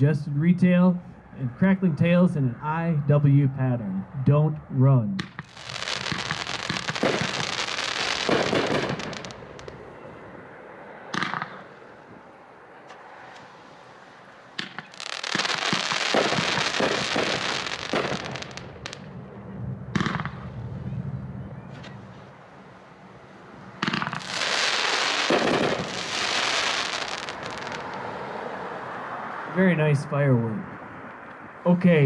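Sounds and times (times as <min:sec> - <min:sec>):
firework launch pops: 0:05.2 - 0:07.6, 0:08.2 - 0:09.8, 0:11.1 - 0:11.6, 0:14.6 - 0:19.0, 0:19.9 - 0:20.5, 0:23.8 - 0:24.4, 0:25.3 - 0:25.9
firework crackling: 0:05.2 - 0:10.0, 0:11.1 - 0:11.9, 0:13.3 - 0:19.2, 0:23.7 - 0:28.2.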